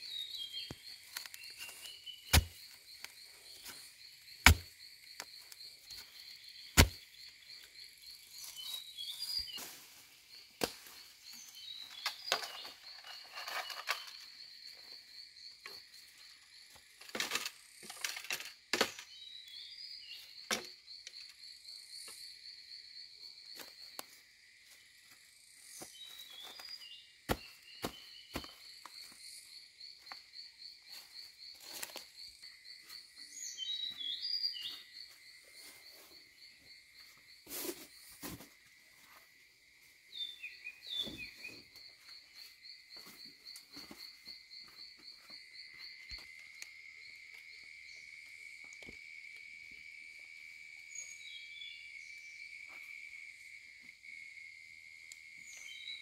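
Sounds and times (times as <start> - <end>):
bird chirps: 0.0 - 4.4, 10.3 - 14.9, 32.8 - 35.1, 40.1 - 46.2
insects trilling: 0.0 - 56.0.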